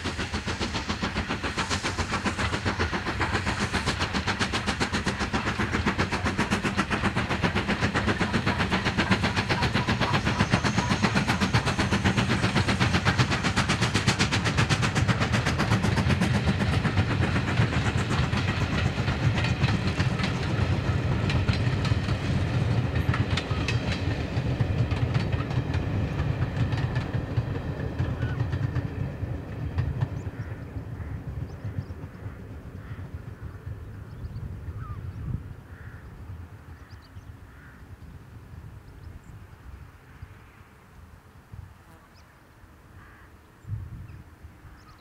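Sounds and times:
steam locomotive exhaust beats: 0.0s - 41.8s.

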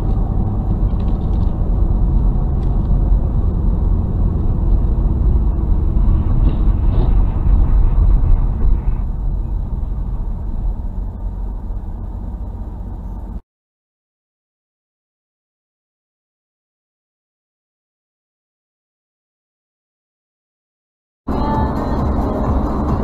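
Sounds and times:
car road rumble from inside: 0.0s - 13.4s, 21.3s - 23.0s.

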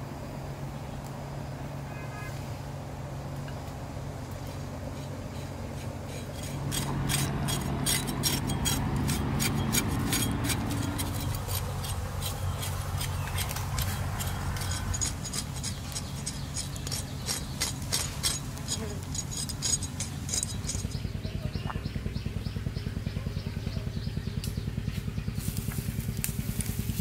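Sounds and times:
knife scraping raw meat: 4.9s - 21.0s.

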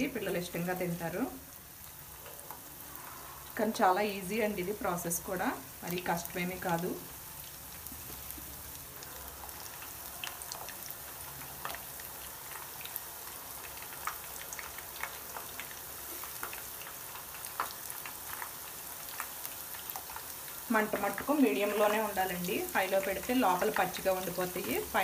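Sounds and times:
deep-frying sizzle: 0.0s - 25.0s
oil pops and crackles: 9.4s - 13.0s, 13.6s - 20.4s.

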